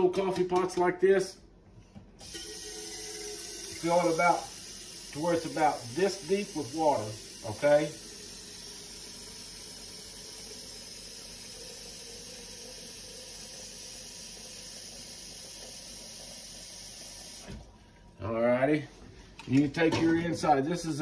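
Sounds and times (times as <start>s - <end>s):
faucet water stream filling pot: 2.2s - 18.2s.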